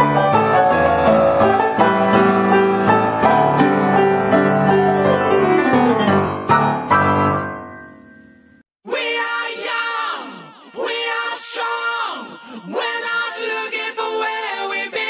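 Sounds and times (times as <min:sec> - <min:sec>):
slow piano music: 0:00.0 - 0:08.3.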